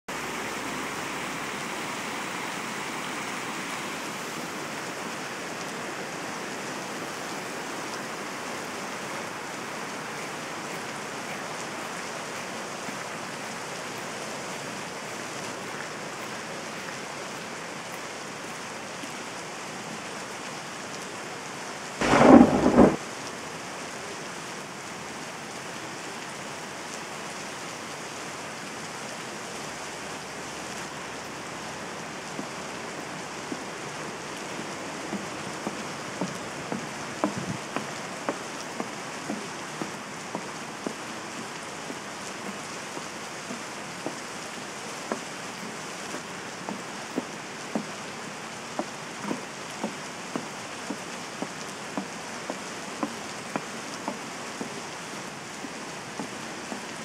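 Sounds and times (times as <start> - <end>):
rain hissing: 0.1 - 57.0
thunder crack: 22.0 - 23.1.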